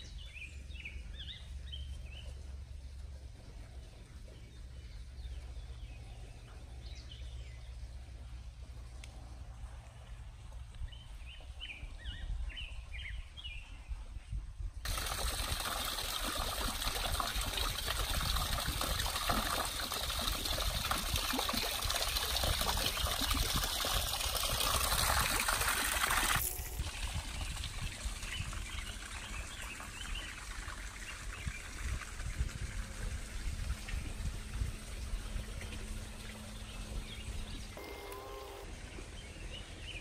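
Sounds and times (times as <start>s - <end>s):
stream trickling over rocks: 14.8s - 37.2s.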